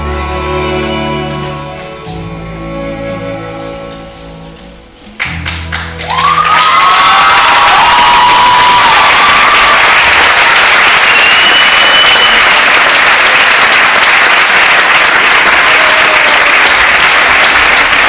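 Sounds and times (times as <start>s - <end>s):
music: 0.0s - 9.0s
audience applauding: 5.2s - 18.0s.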